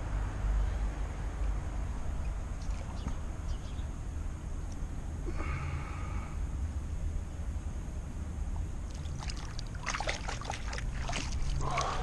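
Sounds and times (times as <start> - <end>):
breathy exhale: 5.3 - 6.5
water dripping and splashing: 8.9 - 12.0.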